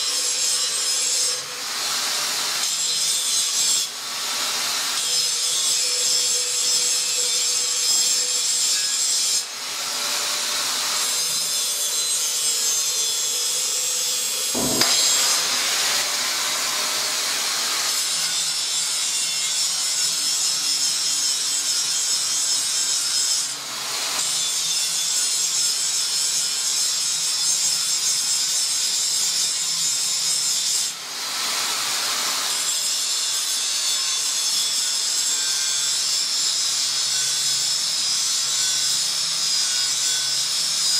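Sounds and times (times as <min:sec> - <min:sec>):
angle grinder grinding steel: 0:00.0 - 0:23.6
sharp knock: 0:14.6 - 0:16.2.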